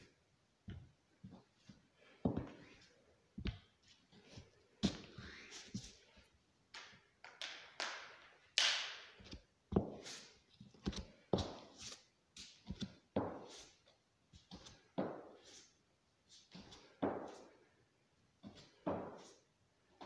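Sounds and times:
footsteps on wooden floor: 0.7 - 2.8, 18.4 - 19.3.

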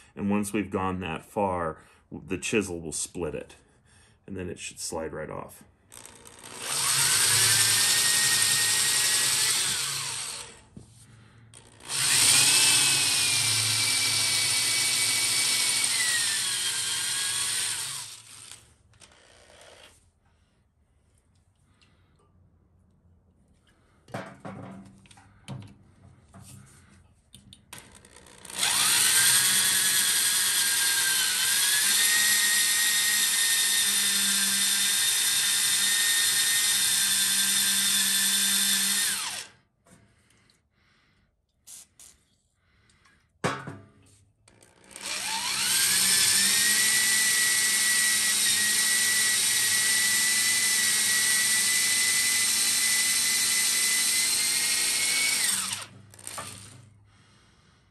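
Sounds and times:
electric drill whining: 5.9 - 10.8, 11.5 - 20.0, 27.7 - 39.6, 44.5 - 57.0.

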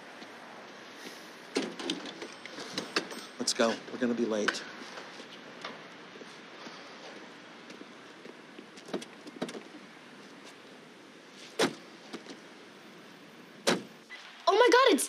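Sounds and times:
faint steady hiss: 0.0 - 15.0
car doors shutting: 13.6 - 14.0.

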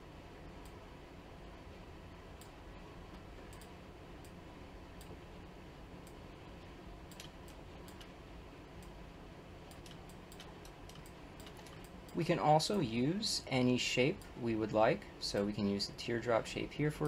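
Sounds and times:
low steady hum: 0.0 - 17.0
computer mouse clicks: 2.4 - 4.4, 7.1 - 8.1, 9.6 - 12.2.

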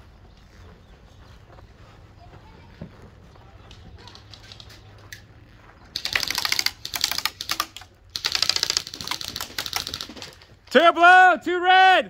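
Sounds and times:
airsoft guns firing full auto: 5.9 - 10.6.

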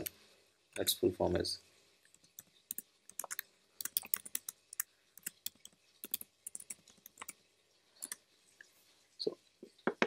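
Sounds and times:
typing on computer keyboard: 2.4 - 7.4.

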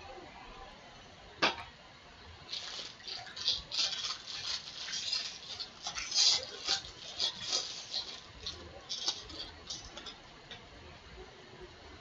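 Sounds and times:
foil wrapper crinkling and tearing: 2.5 - 10.2.

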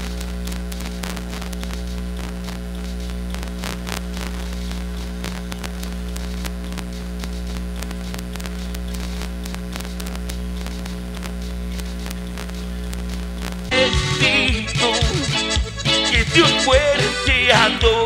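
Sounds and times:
crackling clicks: 0.0 - 13.7
loudspeaker mains hum: 0.0 - 18.0.

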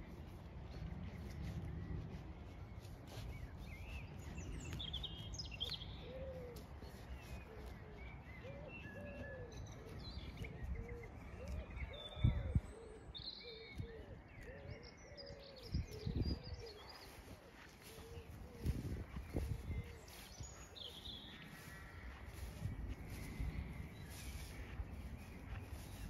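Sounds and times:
wind rumble: 0.0 - 5.5, 18.2 - 26.0
songbirds chirping and trilling: 0.0 - 26.0
dove cooing: 5.9 - 20.1.

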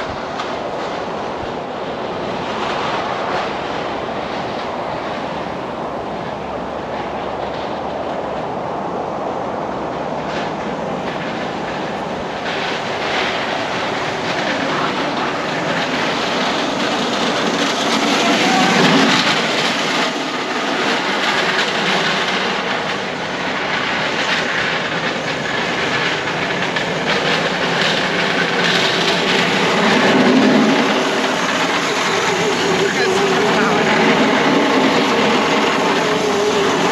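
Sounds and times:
small wheels rolling on asphalt: 9.4 - 36.9.

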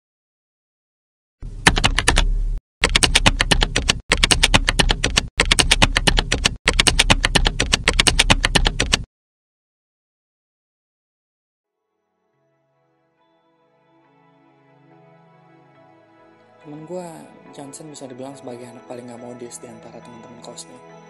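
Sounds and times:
keyboard typing: 1.6 - 9.1.

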